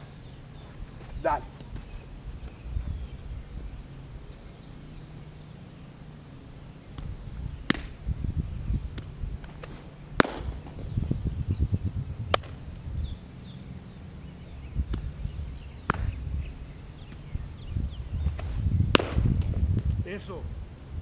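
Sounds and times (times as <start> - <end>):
gusting wind rumble: 0.0 - 5.4, 6.9 - 21.0
balls smacking into gloves: 7.7 - 8.0, 9.0 - 10.8, 12.3 - 12.6, 15.9 - 16.1, 18.4 - 19.6
bird chirps: 13.0 - 18.9.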